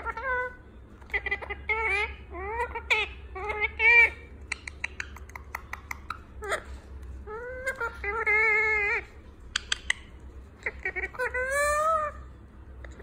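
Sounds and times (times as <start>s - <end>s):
parrot beak clicking and tapping: 4.4s - 6.3s, 9.4s - 10.2s
parrot wavering call: 5.9s - 12.3s.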